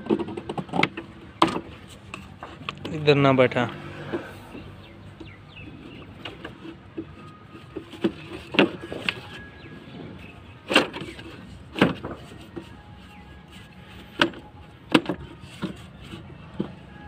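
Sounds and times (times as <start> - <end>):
plastic knocks and clicks: 0.0 - 1.8.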